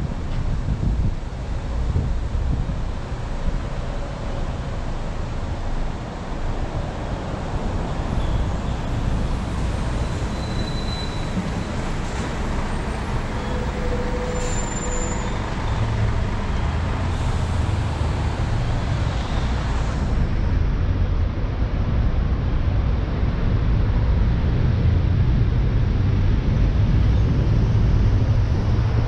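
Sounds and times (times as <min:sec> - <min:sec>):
idling vehicle engines: 0:11.1 - 0:21.1.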